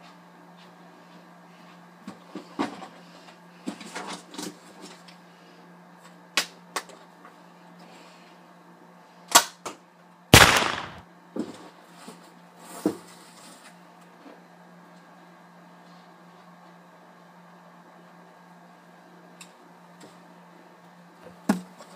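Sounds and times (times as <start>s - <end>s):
gunshot sound effect: 10.4s - 11.0s
toy pistols clicking: 10.4s - 11.0s.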